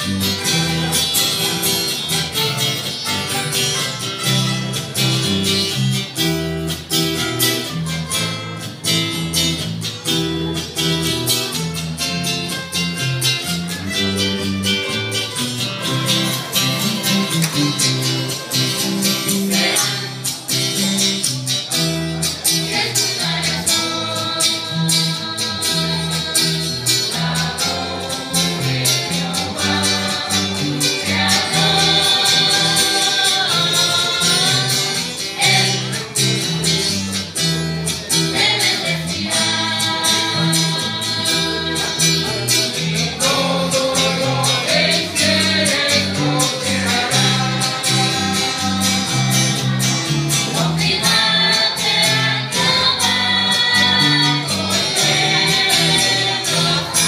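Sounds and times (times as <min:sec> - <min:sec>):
group singing: 0:00.0 - 0:03.0, 0:16.1 - 0:57.0
strummed acoustic guitars: 0:00.0 - 0:57.0.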